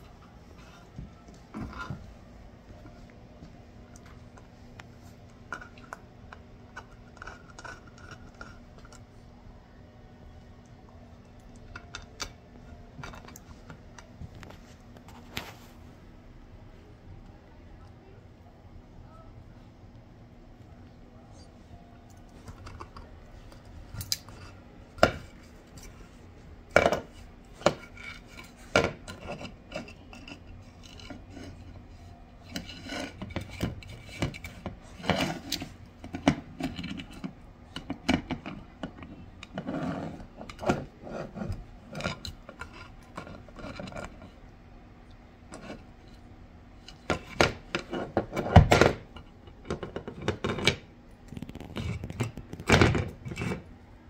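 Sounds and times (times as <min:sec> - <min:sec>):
teeth scraping on antler: 0:27.8 - 0:37.3, 0:51.3 - 0:53.7.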